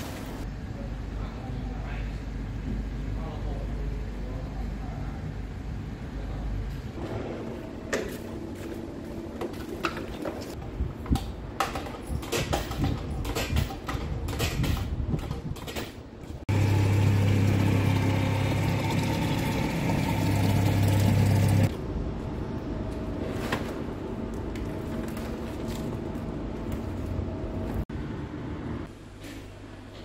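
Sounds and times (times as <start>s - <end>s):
water machine pump hum: 16.5s - 21.7s.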